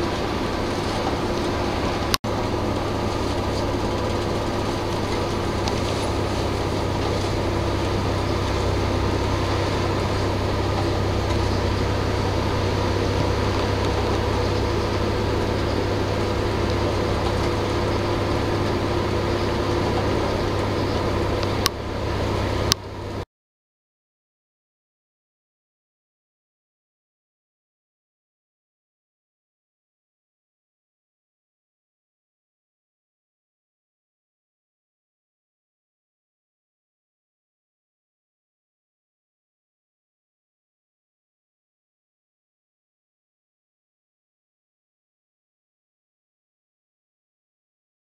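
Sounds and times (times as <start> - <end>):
bus engine and road rumble: 0.0 - 23.2
steady hum: 0.0 - 23.2.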